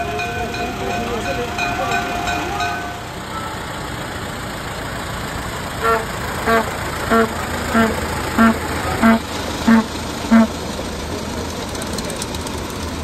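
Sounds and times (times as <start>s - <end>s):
motor horn honking: 0.0s - 3.7s, 5.8s - 10.7s
steady background noise: 0.0s - 13.0s.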